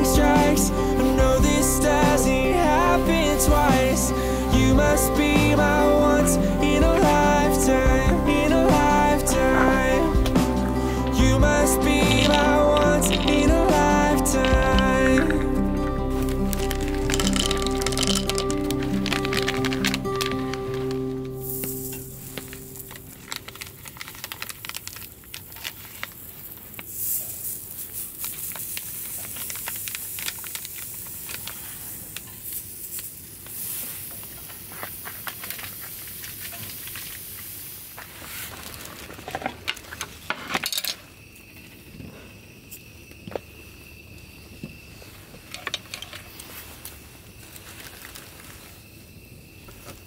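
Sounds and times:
sausages sizzling and popping: 0.0s - 50.0s.

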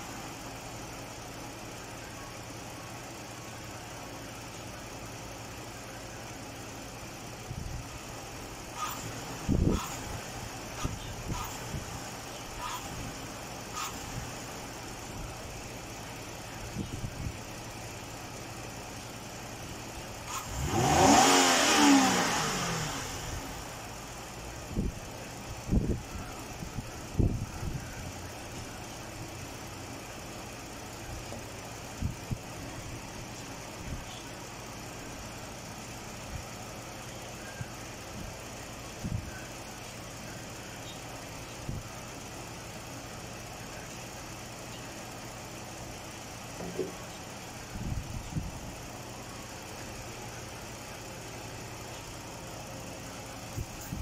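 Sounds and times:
car engine revving: 8.6s - 11.8s, 20.1s - 24.1s.

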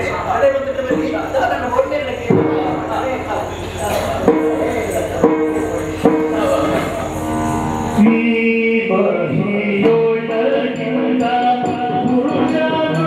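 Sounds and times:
drone notes: 0.0s - 9.8s
drums: 0.0s - 13.0s
person singing: 5.9s - 13.0s.

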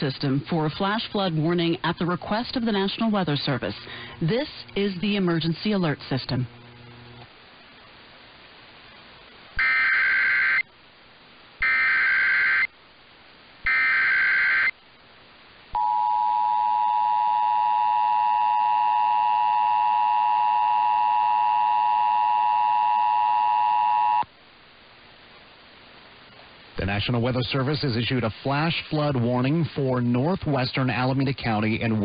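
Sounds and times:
radio hiss: 0.0s - 14.8s, 25.4s - 32.0s
screechy digital data bursts: 9.6s - 10.7s, 11.6s - 12.7s, 13.7s - 14.7s
two-tone attention signal: 15.8s - 24.2s.

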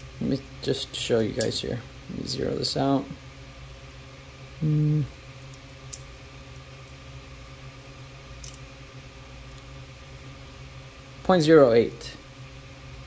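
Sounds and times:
steady hum: 0.0s - 13.0s
man humming: 4.6s - 5.2s.

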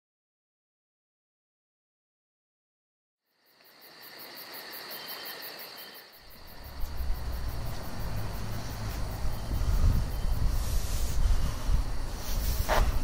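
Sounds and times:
steady high tone: 6.2s - 12.1s
low rumble: 6.2s - 13.0s.

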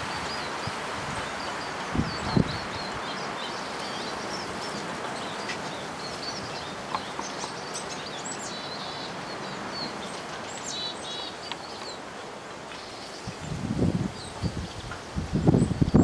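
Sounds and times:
outdoor background hiss: 0.0s - 16.0s
small birds chirping: 0.0s - 16.0s.

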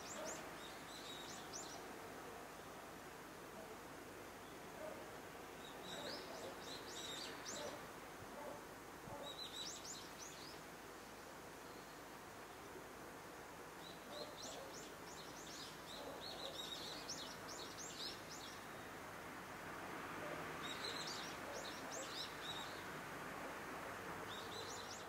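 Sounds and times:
small birds chirping: 5.6s - 7.8s, 9.1s - 10.7s, 13.8s - 19.0s, 20.6s - 22.9s.

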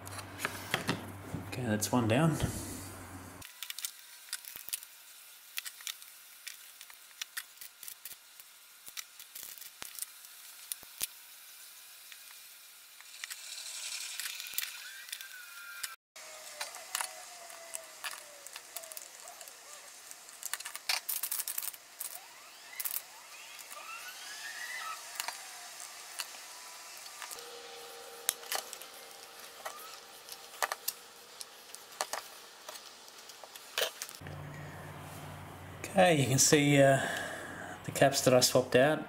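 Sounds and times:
solder flux sizzling: 1.6s - 38.4s.

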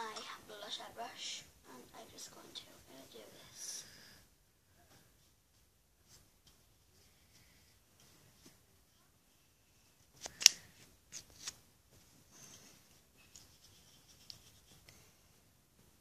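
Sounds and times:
faint rubbing and scraping: 10.8s - 15.5s.

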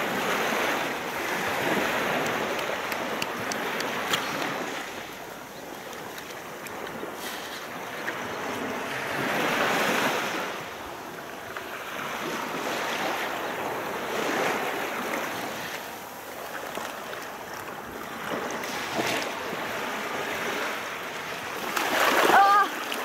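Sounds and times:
waves washing onto beach: 0.0s - 23.0s.

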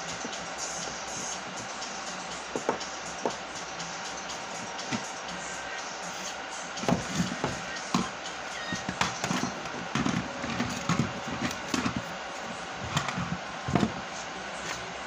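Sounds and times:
steady hiss: 0.0s - 15.0s
knocks on wooden board: 2.5s - 3.4s.

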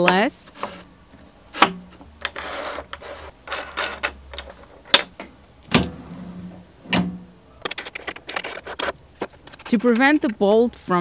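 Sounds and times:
metal block scraping along track: 0.5s - 0.9s, 2.2s - 4.2s.

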